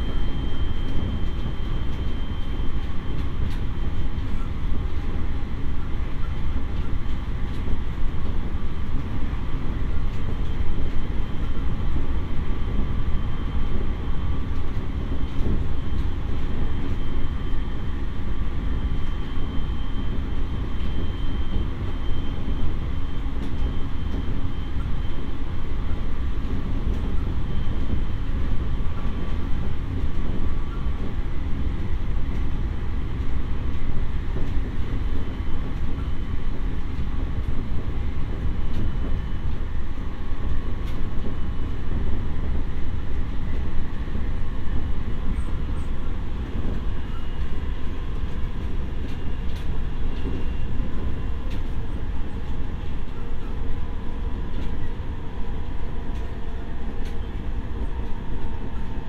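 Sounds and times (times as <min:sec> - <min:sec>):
faint high whine: 0:00.0 - 0:04.6, 0:15.2 - 0:26.0
train wheels rumbling on rails: 0:00.0 - 0:59.0.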